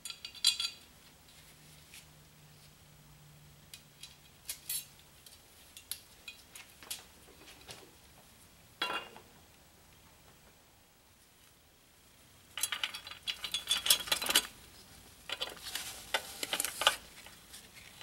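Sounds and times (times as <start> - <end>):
small steel parts clinking: 0.0 - 0.9, 4.0 - 4.9, 12.6 - 14.6.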